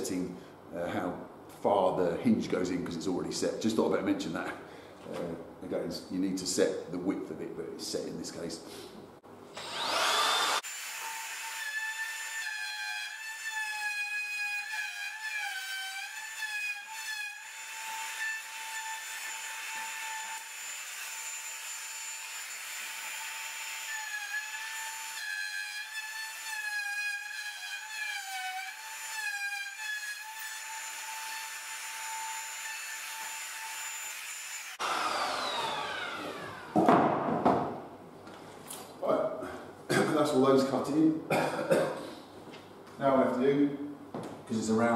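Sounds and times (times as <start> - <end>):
router whining: 9.5 - 12.4, 30.3 - 36.9.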